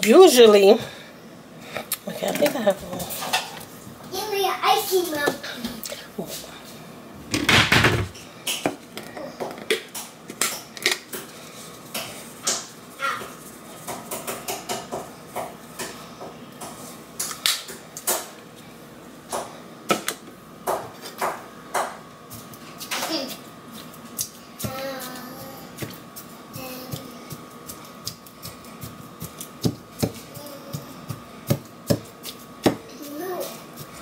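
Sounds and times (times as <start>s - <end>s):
loud kitchen clatter: 7.3s - 8.8s.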